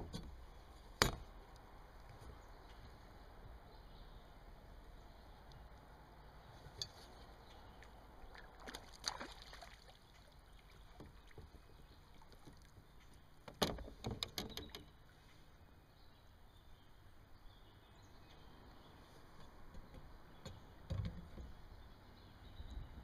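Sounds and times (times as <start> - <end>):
sharp knocks on a kayak: 1.0 - 1.3, 13.5 - 14.8
fish splashing in water: 7.8 - 11.3.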